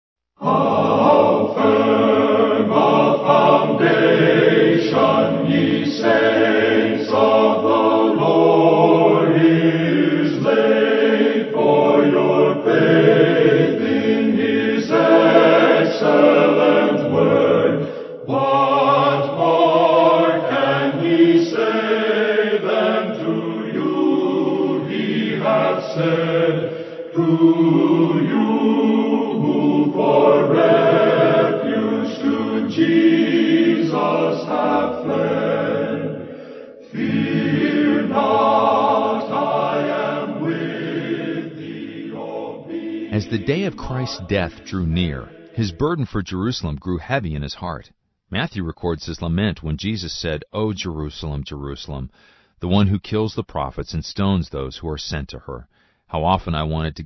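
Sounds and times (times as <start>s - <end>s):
choir singing a hymn: 0.4s - 45.7s.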